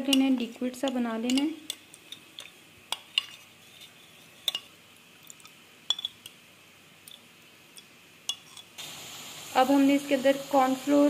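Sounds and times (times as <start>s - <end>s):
spoon stirring in ceramic bowl: 0.0s - 6.4s, 7.8s - 8.7s.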